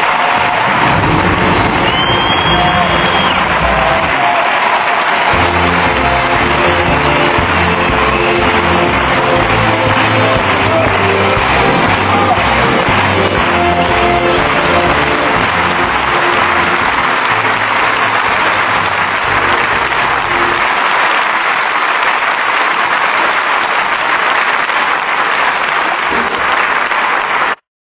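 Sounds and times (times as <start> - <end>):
music: 0.0 - 21.0
large audience applauding: 0.0 - 27.6.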